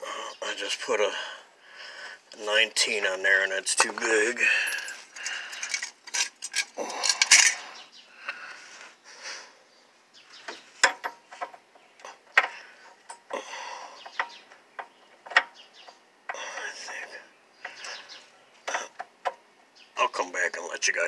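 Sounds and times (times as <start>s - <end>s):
tools clinking on metal: 3.8s - 7.8s.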